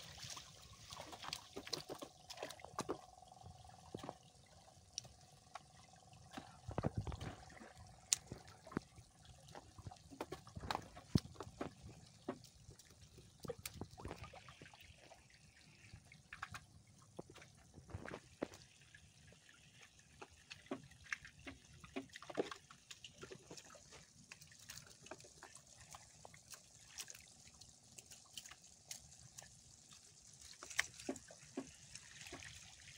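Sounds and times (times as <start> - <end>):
water dripping and trickling: 0.0 - 32.9.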